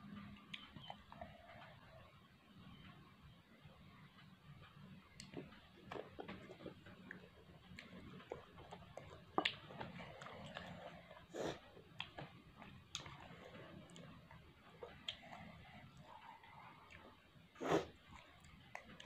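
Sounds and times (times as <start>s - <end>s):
chewing with wet mouth clicks: 5.1s - 17.2s.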